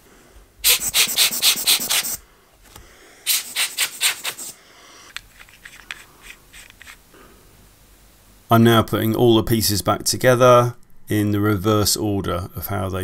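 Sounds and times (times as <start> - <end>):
cloth rubbing on lens: 3.3 - 4.6, 5.3 - 7.1
light scratches: 5.3 - 7.0.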